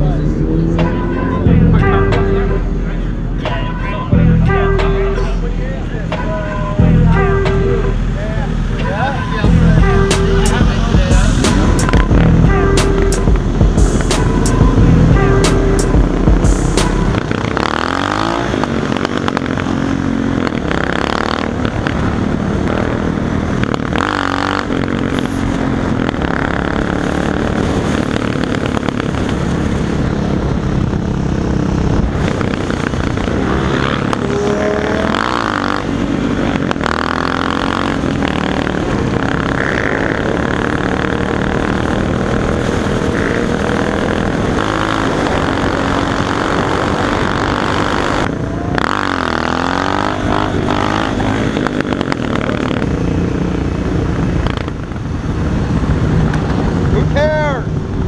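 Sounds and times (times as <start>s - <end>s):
motorcycle engines revving: 0.0s - 58.0s
wind noise: 24.8s - 35.2s, 50.2s - 58.0s.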